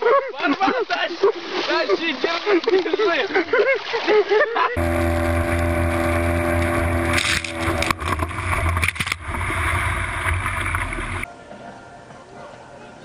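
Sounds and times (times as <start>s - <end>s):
boat motor humming: 4.8s - 11.3s
waves splashing against boat: 4.8s - 11.3s.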